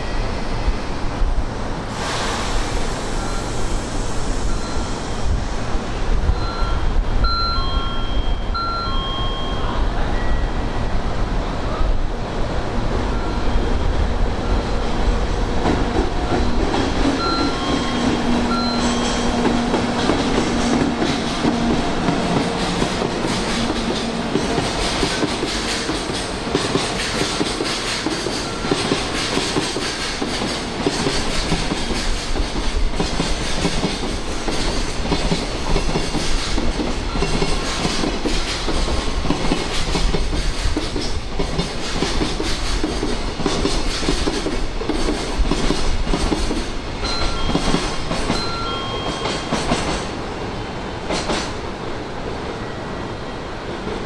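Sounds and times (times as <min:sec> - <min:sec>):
freight train wagons rolling past: 0:00.0 - 0:54.0.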